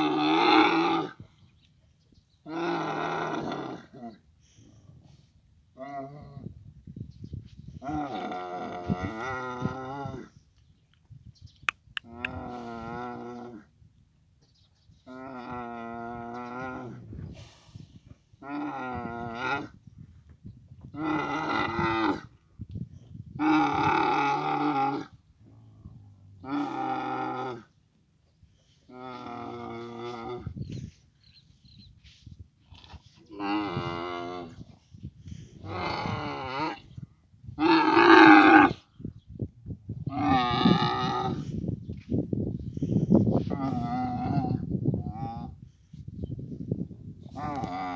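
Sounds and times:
camel grunting and rumbling: 0.0 - 1.5, 2.2 - 6.8, 7.6 - 10.5, 12.0 - 13.8, 14.5 - 20.1, 20.7 - 27.8, 28.4 - 31.8, 32.6 - 39.2, 39.8 - 47.9
camel bellowing calls: 12.0 - 13.6, 15.0 - 17.1, 20.9 - 22.3, 23.4 - 25.2, 26.1 - 27.8, 32.7 - 37.0, 37.6 - 38.8, 40.0 - 41.6, 42.9 - 45.6.

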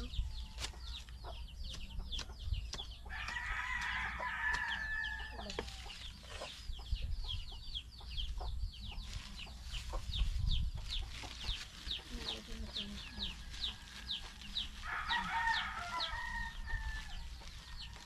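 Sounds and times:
rooster crowing: 3.1 - 5.8, 14.8 - 17.2.

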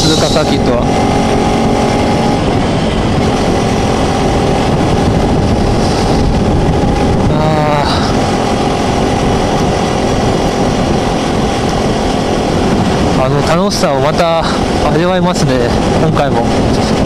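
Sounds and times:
wavering pitch glide: 0.0 - 13.5
motorcycle engine running: 0.0 - 17.0
wind rushing over microphone: 0.0 - 17.0.

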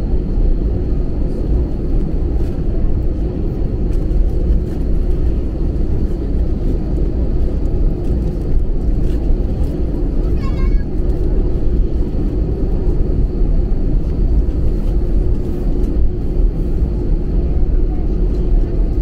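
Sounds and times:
aircraft engines rumbling: 0.0 - 19.0.

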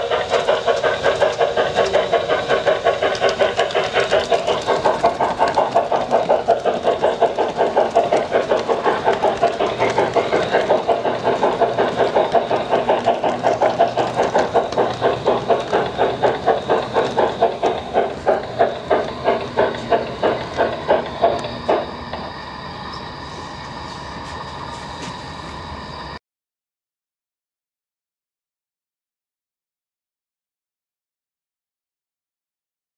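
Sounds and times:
model train clattering on track: 0.0 - 23.1.

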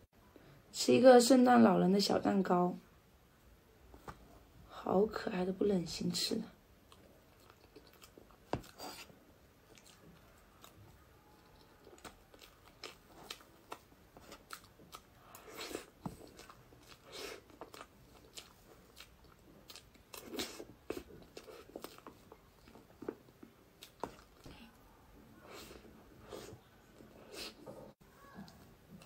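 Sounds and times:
person biting and chewing cake: 6.9 - 24.5.

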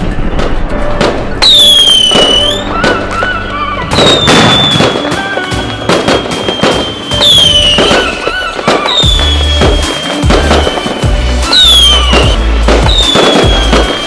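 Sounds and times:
background music: 0.0 - 14.0
fireworks exploding and crackling: 0.0 - 14.0
high drawn-out whistle: 1.4 - 14.0.

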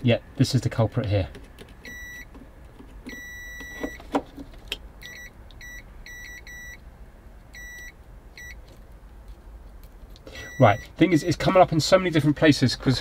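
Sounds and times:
continuity tester beeping: 1.8 - 2.3, 3.1 - 4.0, 5.0 - 6.8, 7.5 - 8.6, 10.4 - 11.0.

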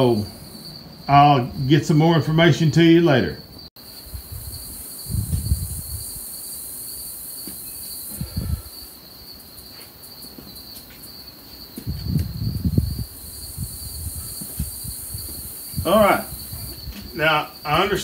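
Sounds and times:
crickets trilling: 0.0 - 18.0
wind rumble on microphone: 4.0 - 6.3, 8.1 - 8.8, 11.8 - 17.2.

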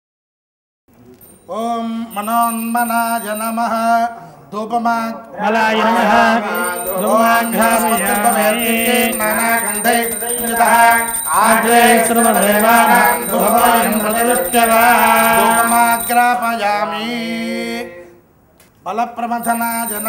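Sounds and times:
men chanting: 1.5 - 18.2.

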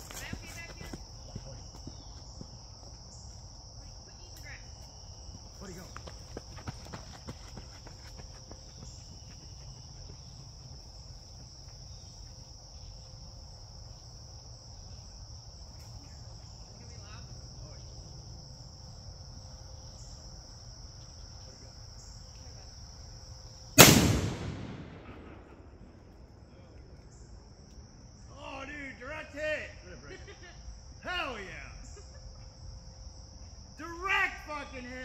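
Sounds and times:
mini cannon bang: 23.8 - 25.8.

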